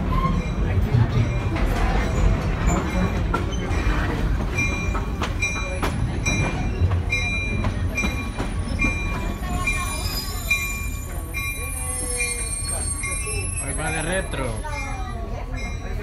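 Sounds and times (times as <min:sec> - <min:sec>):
railway car rumbling: 0:00.0 - 0:16.0
metallic squeak: 0:09.9 - 0:14.2.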